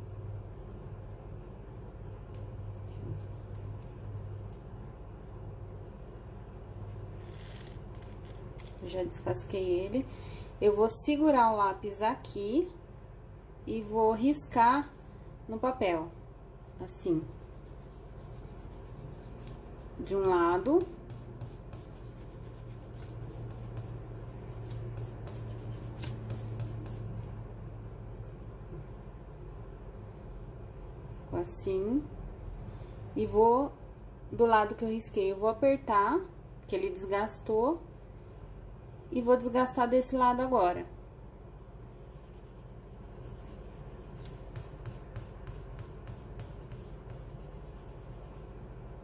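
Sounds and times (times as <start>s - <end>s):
steady low hum: 0.0s - 49.0s
pencil scratching on paper: 17.2s - 27.1s, 41.9s - 48.8s.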